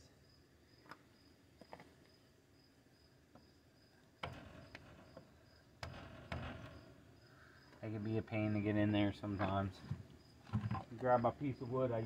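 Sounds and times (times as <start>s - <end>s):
crickets chirping: 0.0s - 12.0s
wood knocking on metal hub: 4.2s - 6.8s.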